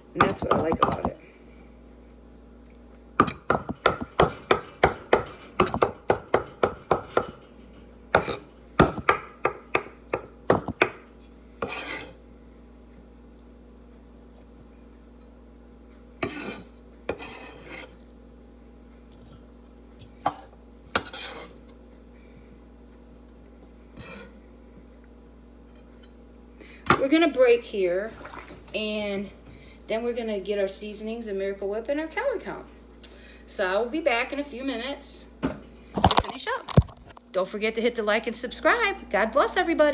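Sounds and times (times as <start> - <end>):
knife chopping on wooden board: 3.2 - 7.3, 8.2 - 11.0
knife scraping wooden board: 11.6 - 12.2, 16.2 - 18.0, 21.0 - 21.6.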